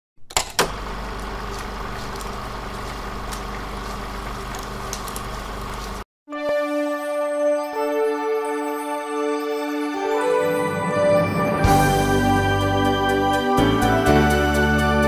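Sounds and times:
electrical hum: 0.4 - 6.0.

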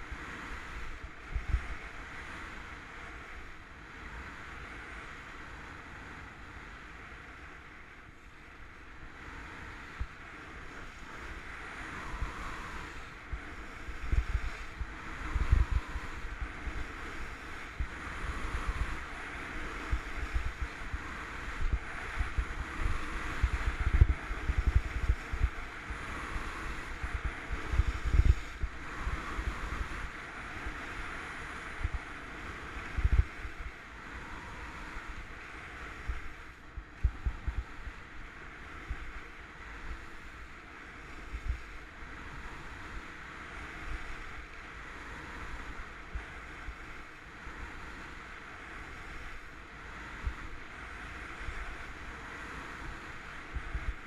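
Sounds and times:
wind buffeting microphone: 0.0 - 3.6, 8.8 - 54.0.

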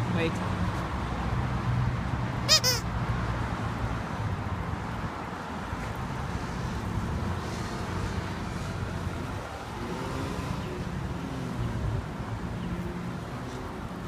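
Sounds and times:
low traffic hum: 0.0 - 14.0
squeaky dog toy squeaking: 2.4 - 2.9.

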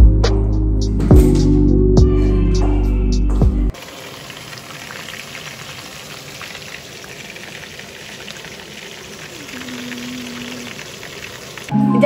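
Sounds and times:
chicken sizzling in oil: 3.7 - 11.7.

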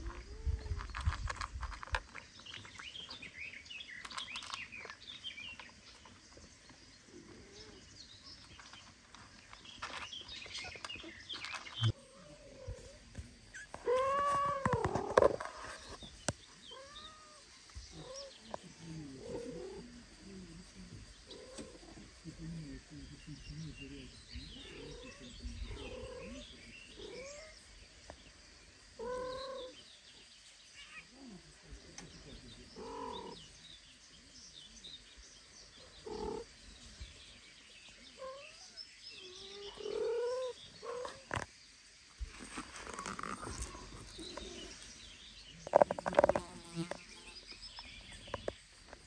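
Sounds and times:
cats mewing and chirping: 0.0 - 3.3, 4.0 - 27.6, 28.9 - 33.6, 35.7 - 37.1, 37.9 - 41.5, 42.3 - 44.9
small birds chirping: 0.0 - 49.0.

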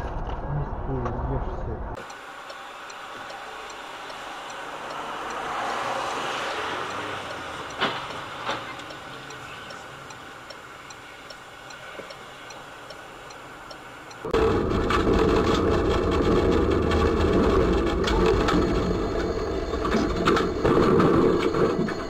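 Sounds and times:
light ticking: 2.0 - 14.4
tyres hissing on wet road: 2.1 - 14.0.

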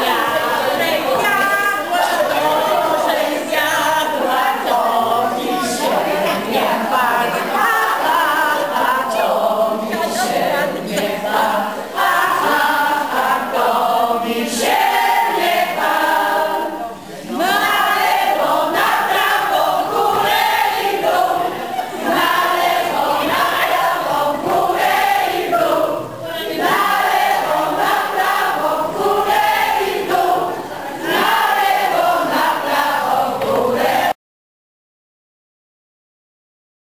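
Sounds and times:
group singing in chorus: 0.0 - 34.2.

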